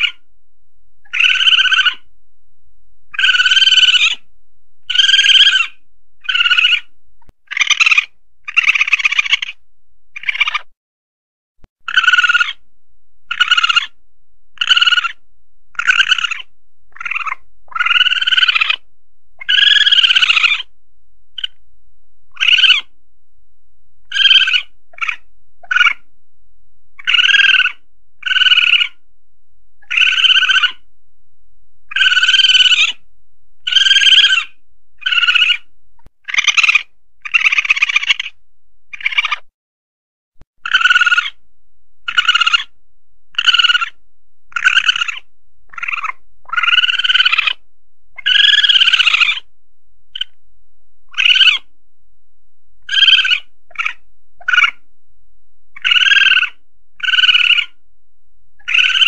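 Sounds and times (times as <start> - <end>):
shrill animal calls: 0.0 - 0.3, 1.0 - 2.1, 3.1 - 10.8, 11.8 - 12.7, 13.3 - 14.0, 14.6 - 20.7, 21.4 - 21.6, 22.3 - 23.0, 24.0 - 26.1, 27.0 - 29.0, 29.8 - 30.9, 31.9 - 33.0, 33.6 - 39.5, 40.6 - 41.4, 42.0 - 49.5, 50.1 - 50.4, 51.1 - 51.7, 52.8 - 54.9, 55.7 - 57.8, 58.6 - 59.0.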